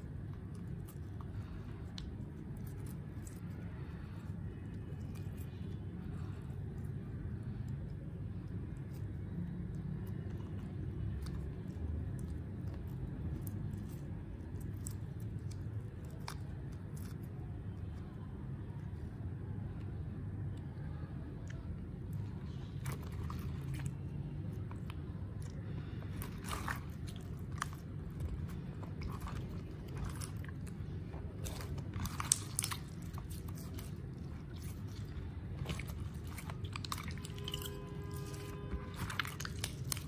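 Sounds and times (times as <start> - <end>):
steady low hum: 0.0 - 40.0
slime squeezed by hand crackling: 21.3 - 40.0.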